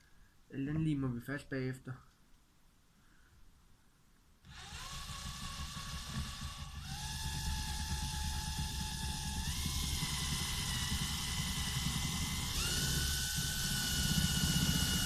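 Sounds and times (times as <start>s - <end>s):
power tool motor whine: 4.5s - 15.0s.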